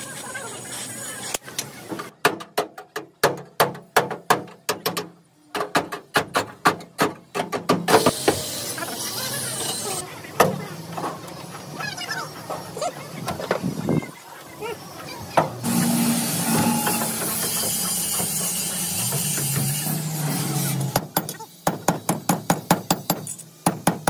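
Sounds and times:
rapid hammering: 20.9s - 24.0s.

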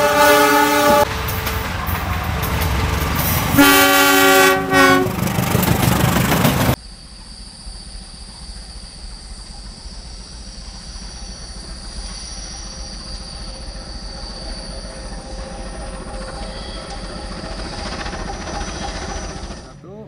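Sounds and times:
high wheel squeal: 0.0s - 6.7s, 10.2s - 19.8s
diesel locomotive engine rumble: 0.0s - 20.0s.

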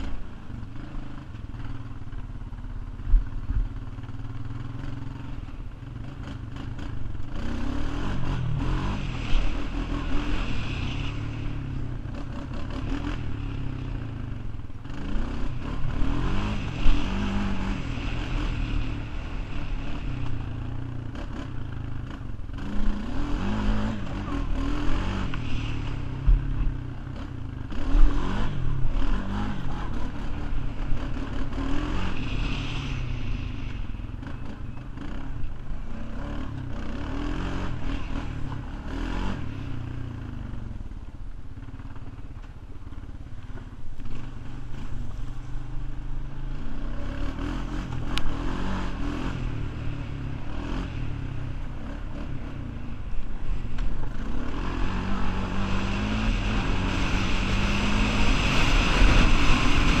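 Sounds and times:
atv engine revving: 0.0s - 41.0s, 41.6s - 60.0s.

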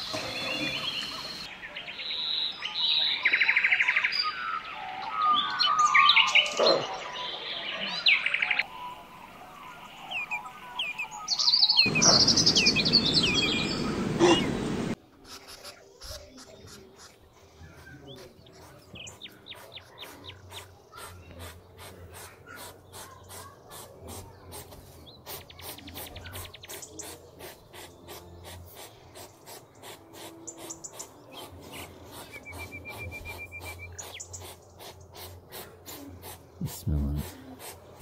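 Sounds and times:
hedgehog snuffling breaths: 17.4s - 38.0s.

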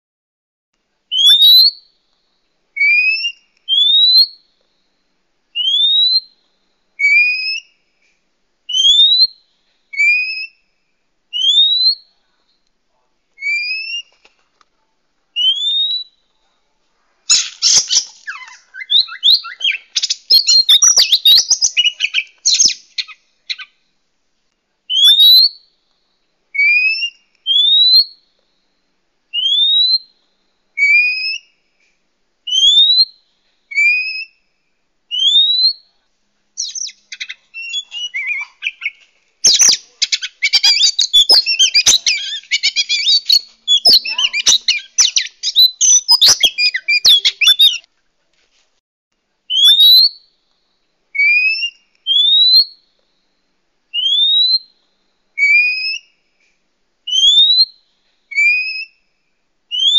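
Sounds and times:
bird singing: 1.1s - 1.8s, 17.3s - 23.8s, 36.6s - 47.9s
rising bird whistles: 1.1s - 1.8s, 2.8s - 4.4s, 5.6s - 6.4s, 7.0s - 7.7s, 8.7s - 10.6s, 11.3s - 12.1s, 13.4s - 14.1s, 15.4s - 16.2s, 17.3s - 23.7s, 26.6s - 28.2s, 29.3s - 30.1s, 30.8s - 31.5s, 32.5s - 34.4s, 35.1s - 35.8s, 36.6s - 47.8s, 49.5s - 50.2s, 51.2s - 52.8s, 54.0s - 54.7s, 55.4s - 56.1s, 57.1s - 59.0s.

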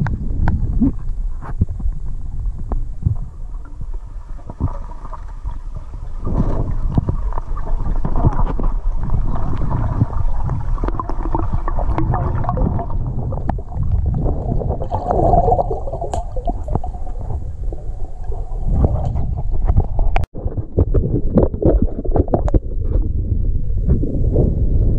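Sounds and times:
water bubbling: 0.0s - 23.0s
underwater rushing and gurgling: 0.0s - 24.9s
small underwater clicks: 6.3s - 15.1s, 16.0s - 17.2s.

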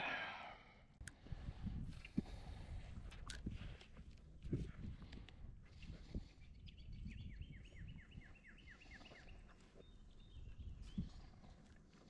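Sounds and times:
bird singing: 6.4s - 11.3s.

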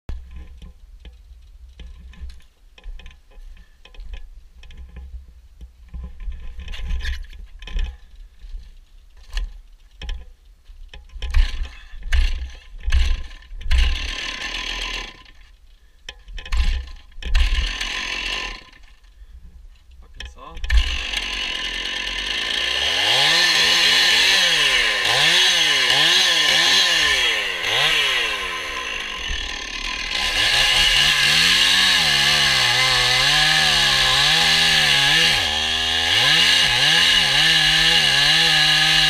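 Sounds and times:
knocks and scrapes: 0.1s - 14.0s
chainsaw running: 11.3s - 15.4s, 16.5s - 19.0s, 20.6s - 39.0s.

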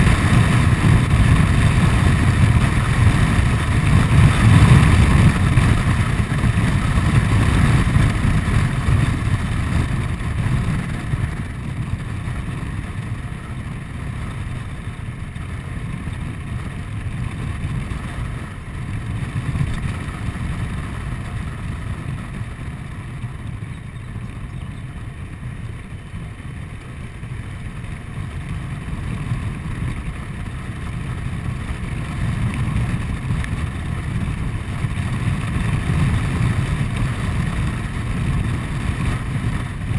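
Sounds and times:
scooter engine running: 0.0s - 39.9s
wind rumble on microphone: 0.0s - 39.9s.

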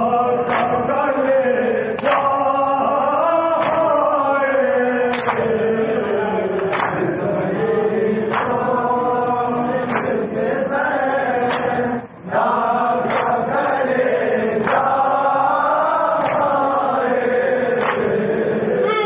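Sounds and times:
men chanting: 0.0s - 19.0s
hands slapping chests: 0.4s - 0.8s, 2.0s - 2.4s, 3.6s - 4.0s, 5.1s - 5.5s, 6.6s - 7.1s, 8.3s - 8.7s, 9.8s - 10.2s, 11.4s - 11.8s, 13.0s - 13.9s, 14.6s - 15.0s, 16.2s - 16.7s, 17.7s - 18.2s.

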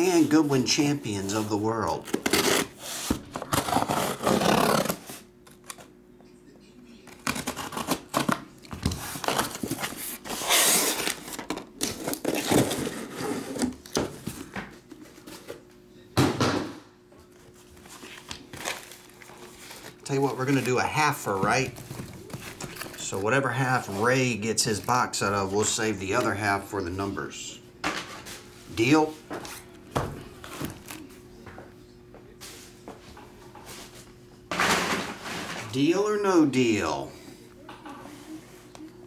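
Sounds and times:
cardboard scraping and rustling: 2.0s - 5.2s, 7.2s - 15.5s
blade cutting packing tape: 2.1s - 2.8s, 3.4s - 5.1s, 7.2s - 8.4s, 10.3s - 12.8s.

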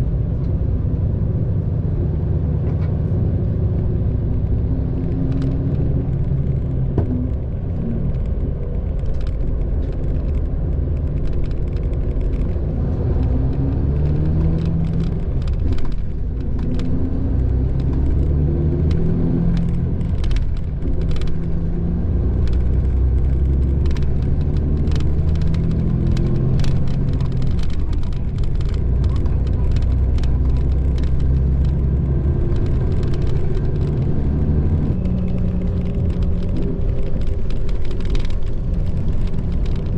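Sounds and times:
bus diesel engine drone: 0.0s - 39.9s
tyre and road noise: 0.0s - 39.9s.

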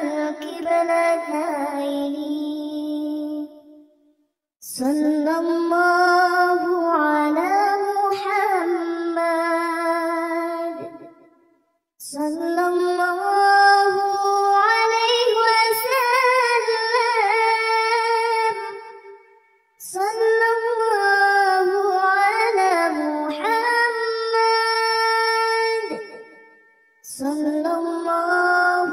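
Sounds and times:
child-like voice singing: 10.4s - 11.0s.

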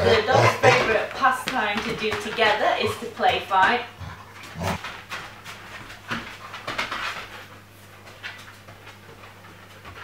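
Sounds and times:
dogs scuffling: 0.0s - 10.0s
dogs huffing: 4.0s - 4.9s.

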